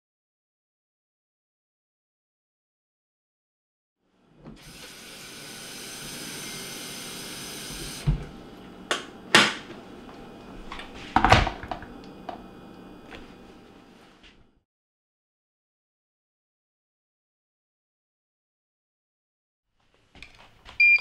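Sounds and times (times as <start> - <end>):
tap water running into kettle: 4.6 - 13.3
kettle set down with clunk: 8.9 - 9.7, 10.7 - 12.4.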